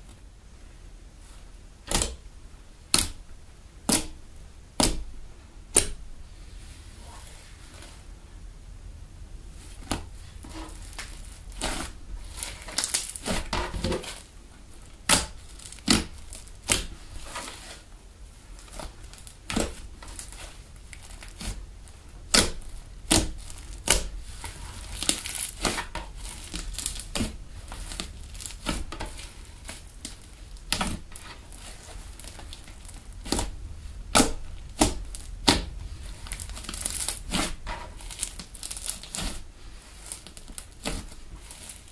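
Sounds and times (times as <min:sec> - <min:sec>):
slime popping and crackling: 0:09.7 - 0:17.8, 0:18.6 - 0:41.9.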